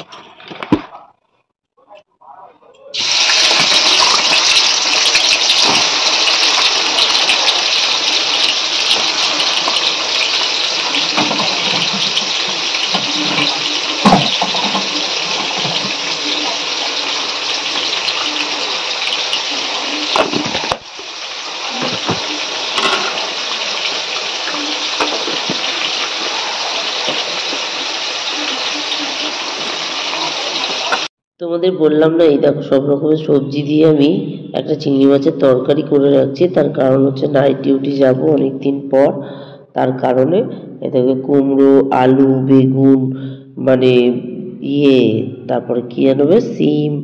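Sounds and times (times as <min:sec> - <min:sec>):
tap water running: 0:03.0 - 0:31.1
utensils knocking: 0:08.9 - 0:16.6, 0:21.7 - 0:23.9.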